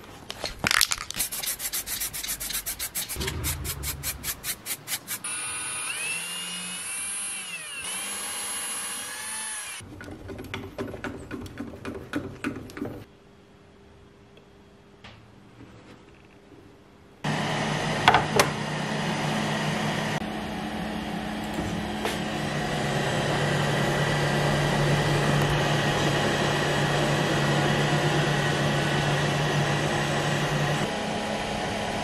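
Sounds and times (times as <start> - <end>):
rapid rhythmic strokes: 1.2 - 5.2
low hum: 2.3 - 5.2
cordless drill whining: 5.3 - 9.8.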